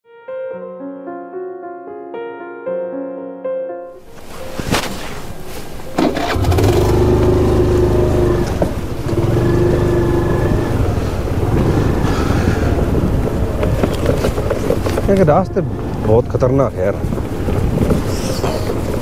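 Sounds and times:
vehicle engine rumbling: 4.2 - 19.0.

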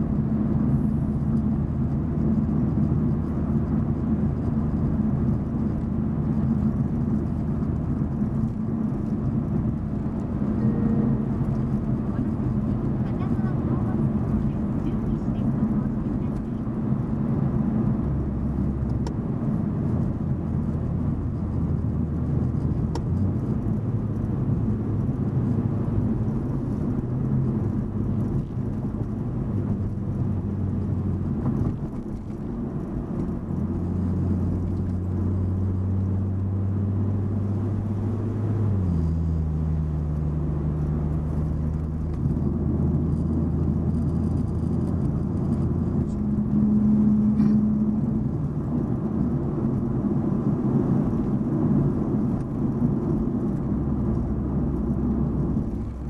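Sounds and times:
car engine and tyre hum: 0.0 - 56.0.

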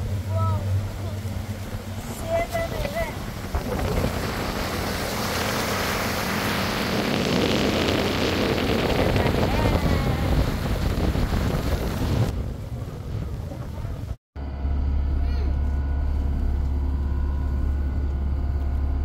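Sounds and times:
low rumble of boat engine: 0.0 - 19.0
wind on microphone: 1.4 - 14.2.

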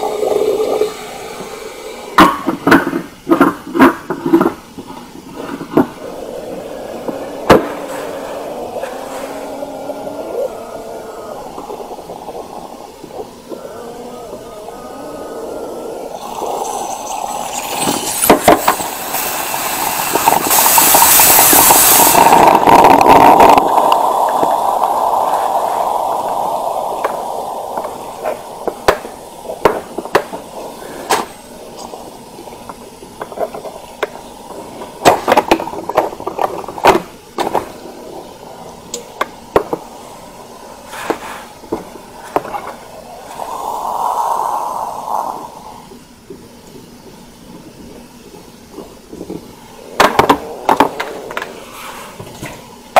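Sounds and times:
espresso maker steam hiss: 0.0 - 2.9, 14.8 - 36.2, 37.7 - 46.0
coffee sputtering and popping: 0.0 - 40.6, 41.6 - 46.0, 48.7 - 51.6.

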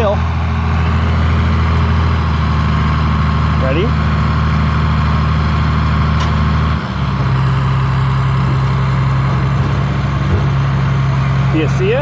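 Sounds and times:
diesel tractor engine running: 0.0 - 12.0
baler tailgate opening: 6.1 - 6.5, 8.4 - 11.0.

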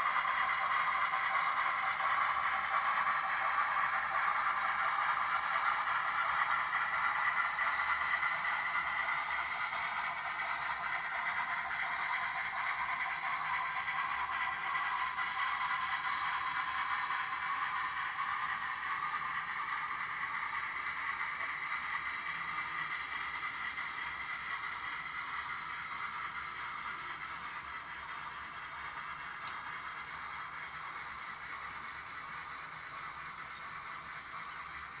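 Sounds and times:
model train cars rattling: 0.0 - 35.0
faint tick: 29.4 - 29.6.

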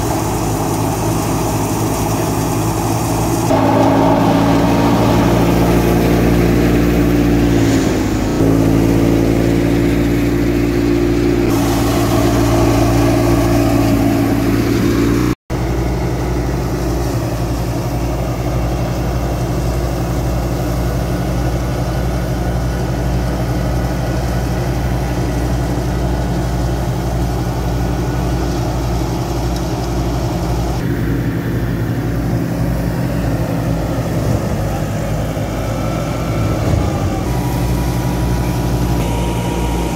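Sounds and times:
thresher whirring drone: 0.0 - 39.9
tractor diesel engine running: 0.0 - 39.9.

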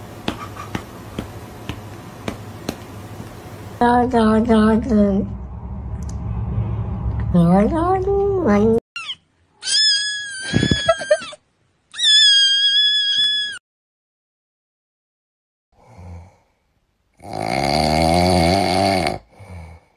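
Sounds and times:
kitten screaming: 9.0 - 13.6
cat snoring: 17.2 - 19.8.

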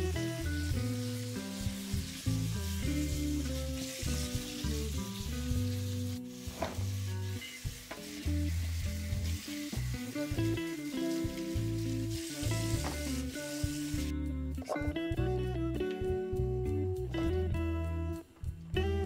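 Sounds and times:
background music: 0.0 - 19.0
tap water splashing: 12.7 - 13.2.

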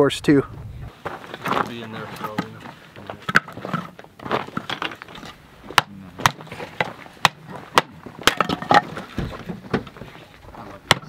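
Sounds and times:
hatchet splitting wood: 5.7 - 10.0.

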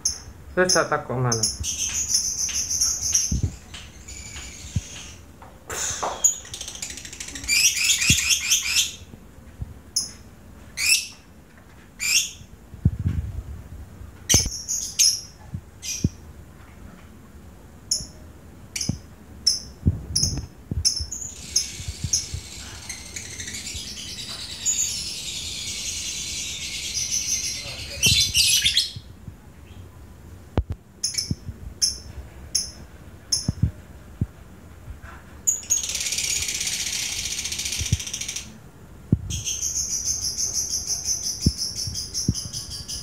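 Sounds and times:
lovebirds chattering: 0.0 - 9.1, 18.8 - 29.1.

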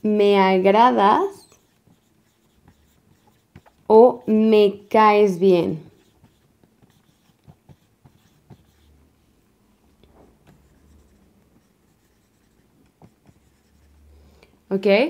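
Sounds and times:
marker writing on whiteboard: 1.2 - 4.4, 5.7 - 9.4, 10.0 - 14.1.

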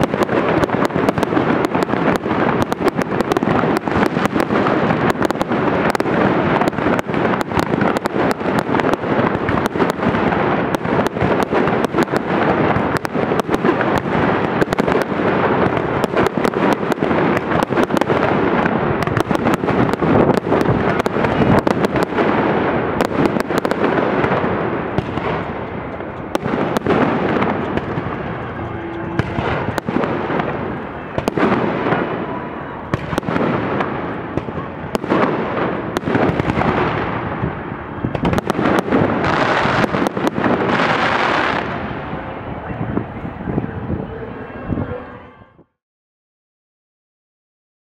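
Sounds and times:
fireworks bursts and crackle: 0.0 - 45.2.

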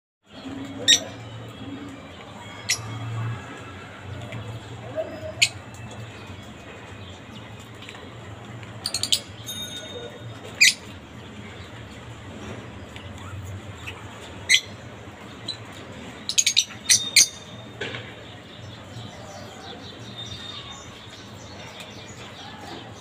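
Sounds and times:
parakeet chirping: 16.3 - 17.6.

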